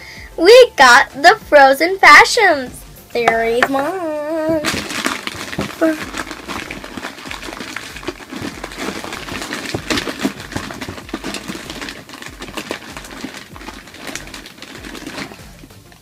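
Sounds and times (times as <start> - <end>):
foil packets crinkling: 4.5 - 16.0.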